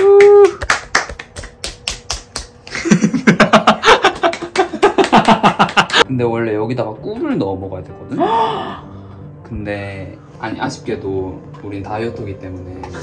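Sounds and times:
people clapping hands: 0.0s - 6.0s.

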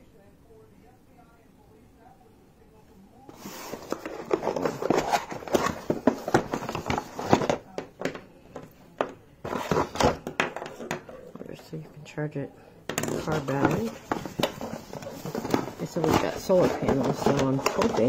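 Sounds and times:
cables and plastic rustling: 3.3s - 12.0s, 12.9s - 18.0s.

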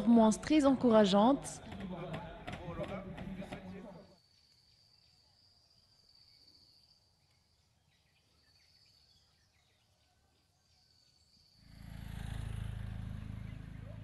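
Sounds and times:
faint chirps: 3.9s - 11.8s.

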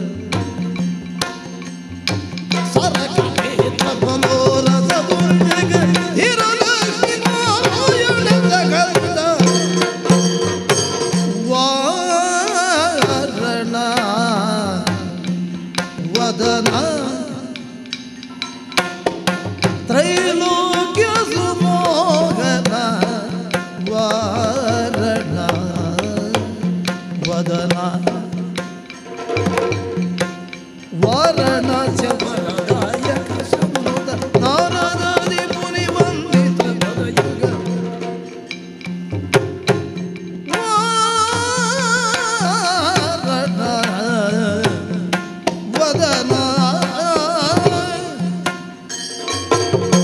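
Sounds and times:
rapid drum strokes: 0.0s - 50.0s
person singing ornamented verse: 2.8s - 10.0s, 40.5s - 45.1s.

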